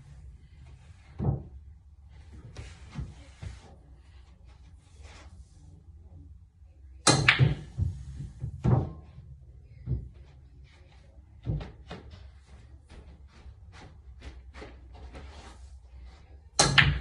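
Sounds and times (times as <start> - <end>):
pool cue striking ball: 7.1 - 9.0, 16.6 - 17.0
pool balls knocking: 7.1 - 9.2, 16.6 - 17.0.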